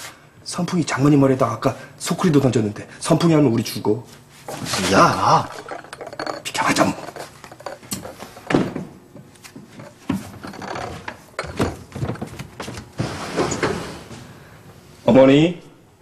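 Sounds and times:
footsteps on wooden floor: 0:07.6 - 0:13.2
sliding door opening: 0:13.0 - 0:14.3.

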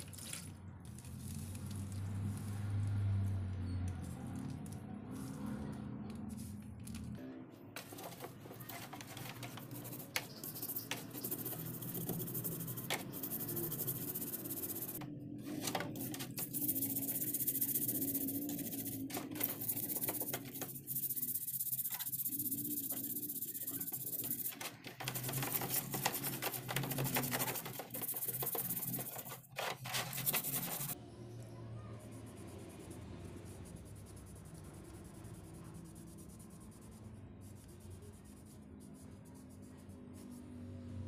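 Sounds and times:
brush scrubbing plastic: 0:07.8 - 0:31.0.

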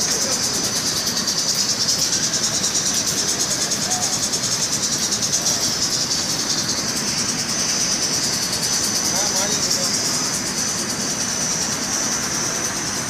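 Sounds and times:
fabric rolling machine whirring: 0:00.0 - 0:13.0.

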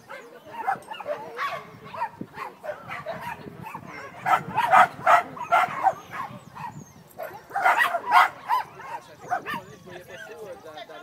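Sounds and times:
dog barking: 0:00.1 - 0:09.7.

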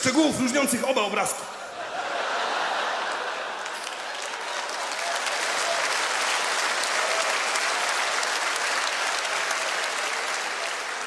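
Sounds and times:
audience applauding: 0:02.6 - 0:11.0.

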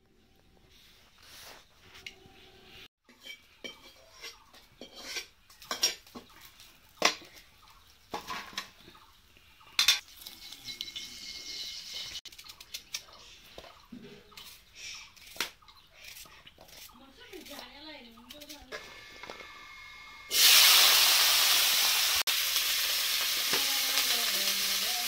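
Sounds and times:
metal cookware clanking: 0:03.1 - 0:07.4, 0:08.1 - 0:08.8, 0:09.8 - 0:12.2.

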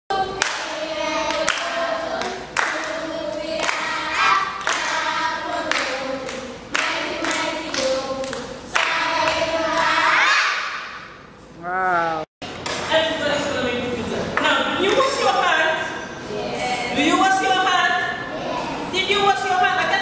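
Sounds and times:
children singing: 0:00.1 - 0:10.8
children clapping: 0:00.4 - 0:03.0, 0:03.6 - 0:10.4.

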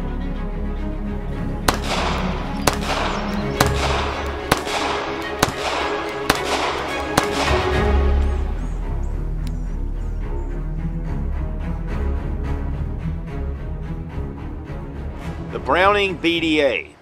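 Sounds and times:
background music: 0:00.0 - 0:17.0
pistol shots with echo: 0:01.7 - 0:08.1.

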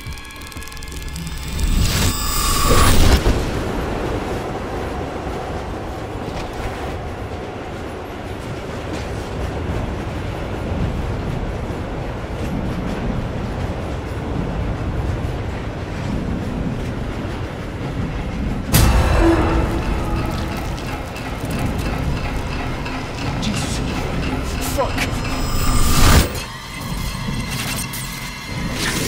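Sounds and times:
underground train rumbling and rattling: 0:00.0 - 0:29.0
sudden loud hit: 0:18.7 - 0:26.4.

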